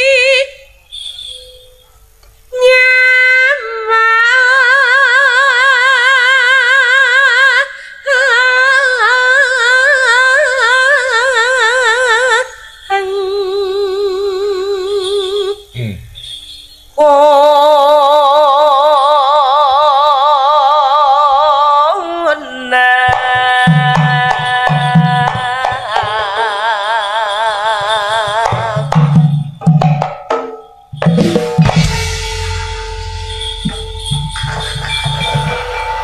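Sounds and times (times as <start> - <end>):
woman singing with vibrato: 0.0 - 0.7, 2.5 - 15.7, 17.0 - 29.2
hand drum strokes: 28.2 - 36.0.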